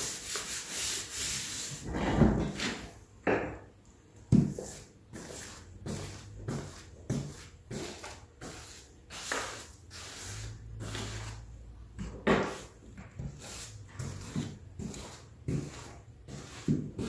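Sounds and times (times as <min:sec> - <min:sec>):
paintbrush swishing strokes: 0:04.6 - 0:11.6, 0:12.4 - 0:17.0.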